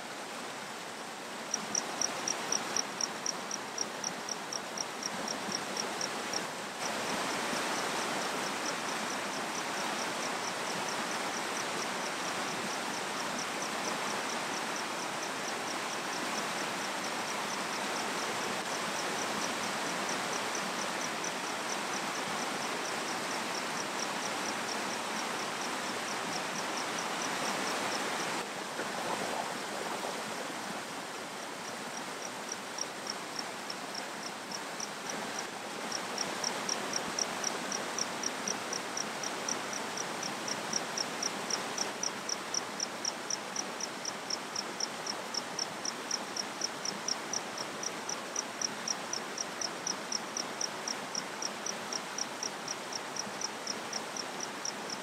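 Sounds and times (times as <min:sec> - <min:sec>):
stream rushing over rocks: 0:00.0 - 0:55.0
insect chirping: 0:01.5 - 0:28.4, 0:31.2 - 0:55.0.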